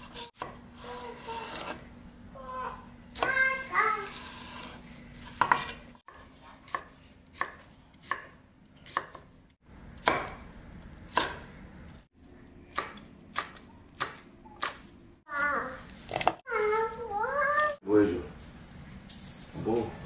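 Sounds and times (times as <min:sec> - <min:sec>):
knife chopping on wooden board: 0:04.2 - 0:09.3, 0:10.0 - 0:10.5, 0:11.1 - 0:11.5.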